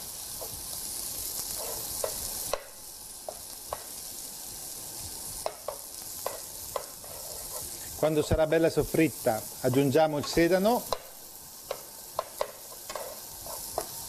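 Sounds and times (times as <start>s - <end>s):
onions sizzling in oil: 0.0s - 14.0s
spoon knocking against pan: 5.4s - 7.0s, 11.7s - 13.2s.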